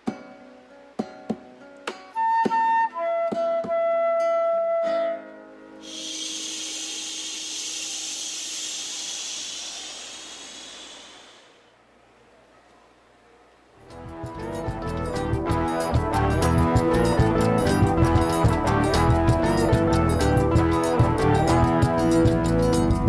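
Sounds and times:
flute notes: 2.1s - 11.8s
people shushing: 5.8s - 11.8s
sharp plucked hits: 13.8s - 23.0s.

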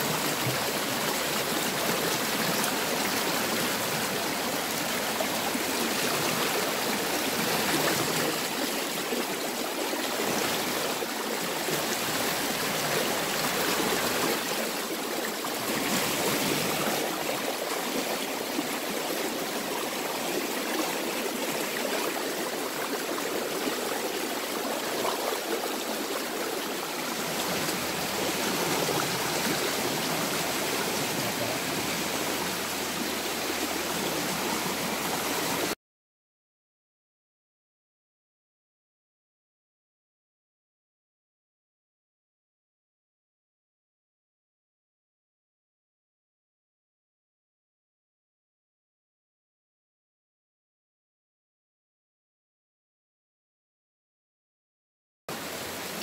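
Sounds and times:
stream rushing over rocks: 0.0s - 35.8s.

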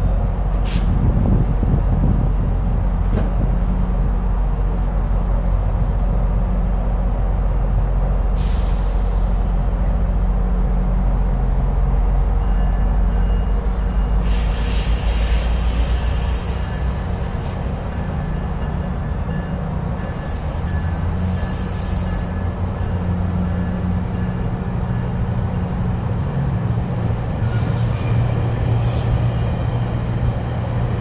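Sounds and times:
train low rumble: 0.0s - 31.0s
air brakes hissing: 0.5s - 1.0s, 8.3s - 9.4s, 13.6s - 18.0s, 19.9s - 22.4s, 27.4s - 29.5s.

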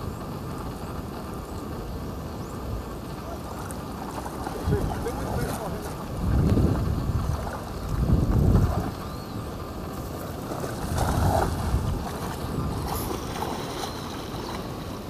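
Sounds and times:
wind on microphone: 0.0s - 15.0s
water splashing: 3.2s - 15.0s
man wading through water: 9.9s - 15.0s.

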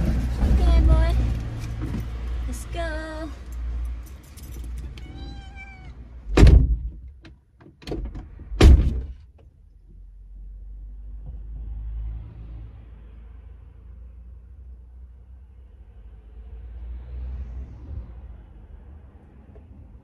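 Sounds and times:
kitten meowing: 4.9s - 6.1s
car doors slamming: 6.3s - 9.2s.

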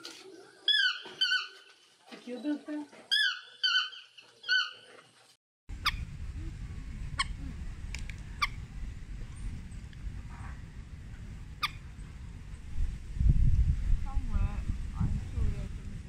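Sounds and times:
toucan yelping call: 0.7s - 1.7s, 3.1s - 4.9s, 11.6s - 11.9s
low outdoor rumble: 5.7s - 16.0s.

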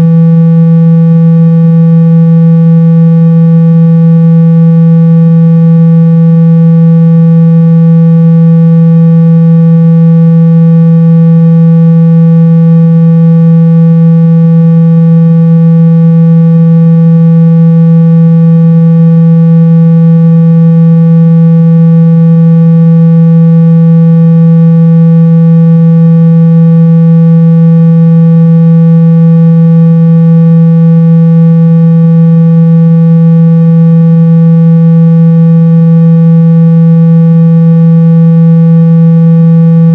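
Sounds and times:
steady low-pitched tone: 39.6s - 39.9s.

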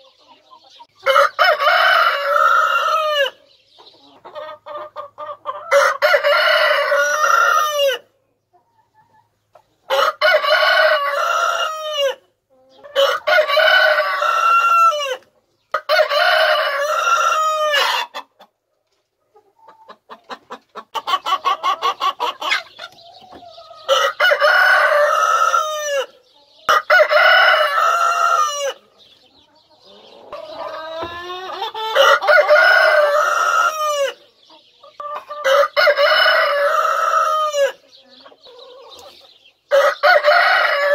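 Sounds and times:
hens clucking: 0.0s - 40.9s
rooster crowing: 1.0s - 3.4s, 5.7s - 8.0s, 9.9s - 12.2s, 13.0s - 15.2s, 15.8s - 18.1s, 23.8s - 26.1s, 26.8s - 28.8s, 31.9s - 34.2s, 39.7s - 40.9s.

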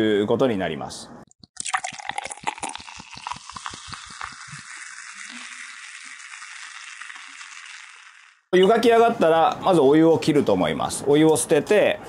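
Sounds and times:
beer splashing into a glass: 1.6s - 8.4s
foam fizzing: 2.3s - 8.4s.

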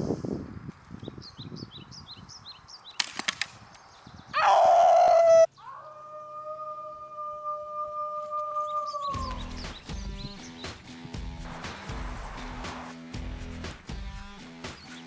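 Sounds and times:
man howling: 4.4s - 9.5s.

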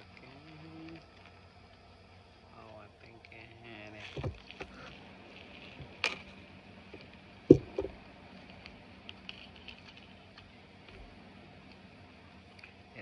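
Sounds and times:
faint ticks: 0.0s - 3.5s
jewelry box thump: 7.5s - 8.0s.

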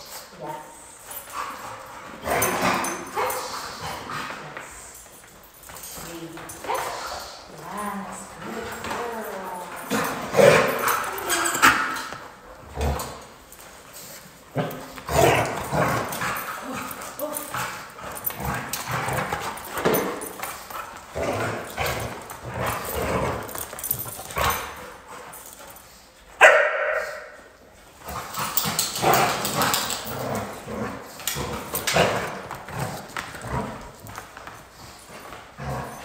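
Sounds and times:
dogs barking: 26.4s - 27.2s.

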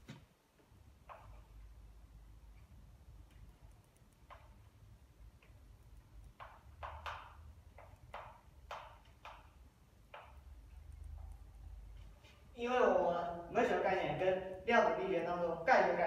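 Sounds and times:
faint low hum: 0.0s - 16.0s
chalk tapping and scraping on blackboard: 4.2s - 4.7s, 6.2s - 10.8s.

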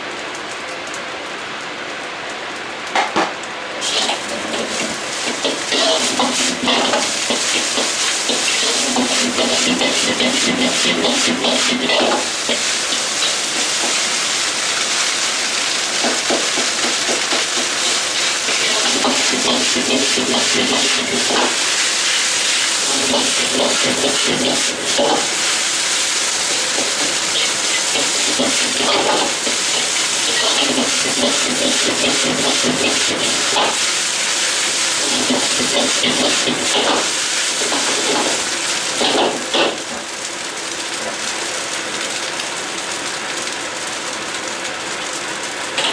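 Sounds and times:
rice sizzling in a wok: 0.0s - 45.9s
gas burner hiss: 3.8s - 40.1s
metal ladle scraping a wok: 26.7s - 33.8s.

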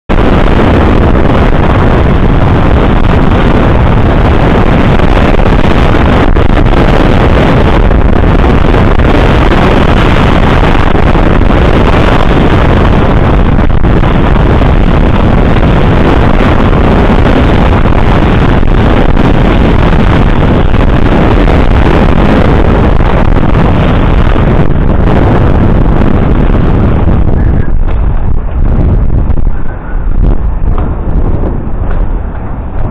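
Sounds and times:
wind buffeting microphone: 0.0s - 32.9s.

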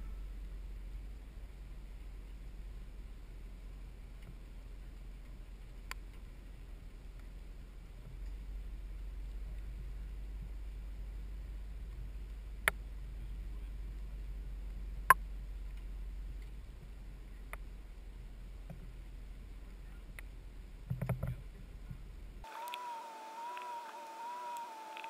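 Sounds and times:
steady low rumble: 0.0s - 22.5s
fire crackling: 22.2s - 25.0s.

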